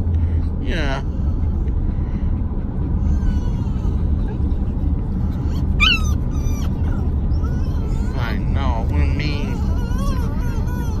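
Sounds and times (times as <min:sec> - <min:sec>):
road rumble inside moving car: 0:00.0 - 0:11.0
dog whining: 0:02.5 - 0:11.0.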